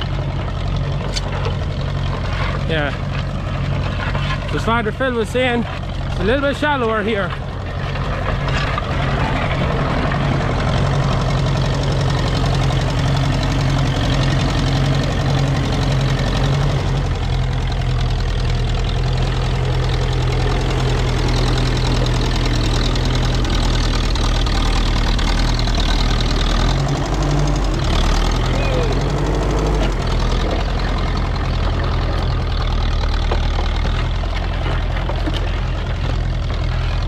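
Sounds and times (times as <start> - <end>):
tractor engine running: 0.0 - 37.0.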